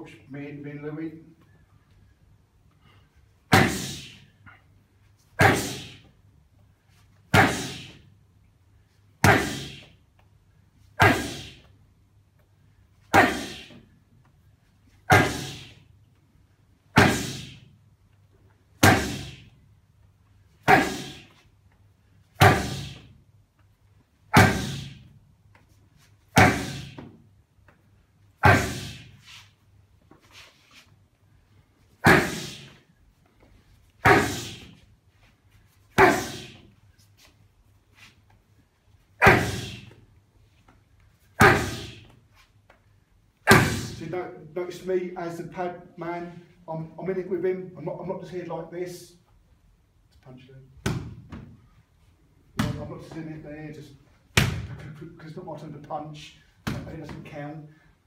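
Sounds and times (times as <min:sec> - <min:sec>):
punches on focus pads: 0:26.3 - 0:27.1.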